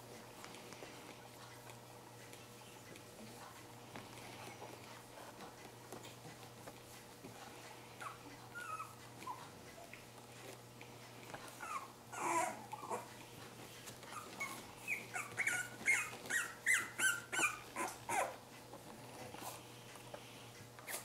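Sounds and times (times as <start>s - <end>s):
puppies whimpering: 8.0s - 10.1s, 11.6s - 13.2s, 13.9s - 18.4s.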